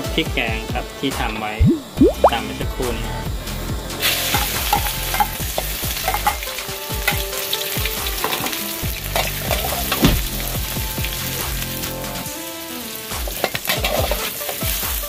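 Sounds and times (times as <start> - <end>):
paste sizzling in hot oil: 3.9 - 15.0.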